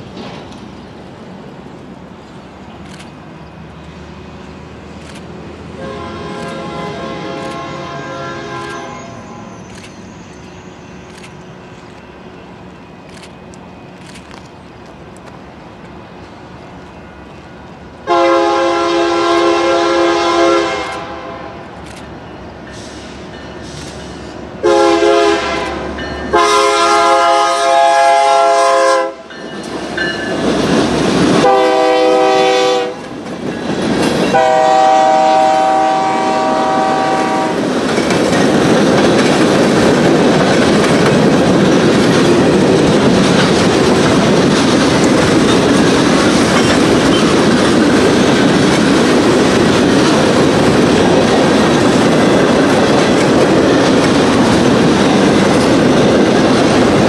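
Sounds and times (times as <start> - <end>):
rumble of passing locomotive: 0.0 - 57.0
locomotive air horn blasts: 5.8 - 9.5, 18.1 - 21.8, 24.6 - 29.3, 31.4 - 33.0, 34.3 - 37.6
train wheels clacking on rails: 29.2 - 35.3, 36.1 - 57.0.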